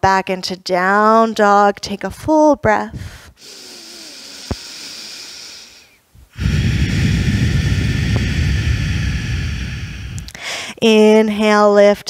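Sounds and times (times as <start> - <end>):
person breathing deeply: 3.0 - 10.8.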